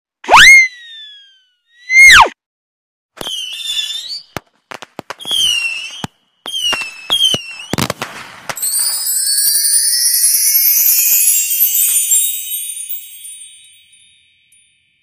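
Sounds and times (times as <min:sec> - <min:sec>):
firework pops: 0:03.2 - 0:09.1
firework whistles: 0:03.2 - 0:12.6
firework crackling: 0:03.2 - 0:13.2.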